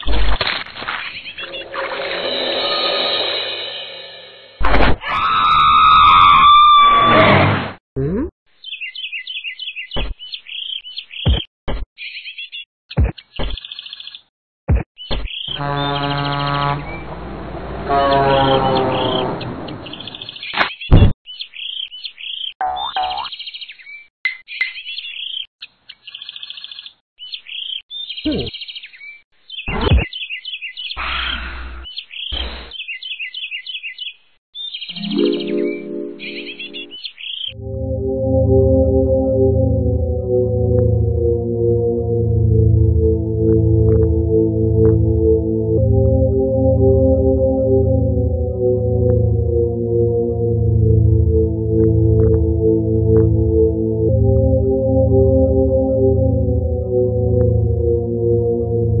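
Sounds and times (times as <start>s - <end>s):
birdsong chirping: 8.5s - 14.3s, 15.0s - 16.6s, 18.1s - 37.6s
high bird-like chirps: 29.6s - 37.6s
falling pitch sweeps: 37.5s - 52.2s.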